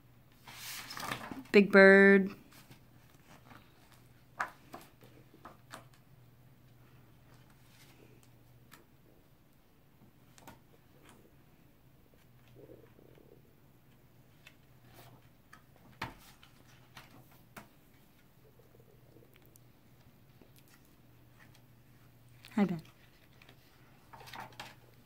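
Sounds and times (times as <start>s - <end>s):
faint steady hum: 0.0s - 25.0s
book pages flipping: 0.4s - 1.5s, 22.8s - 25.0s.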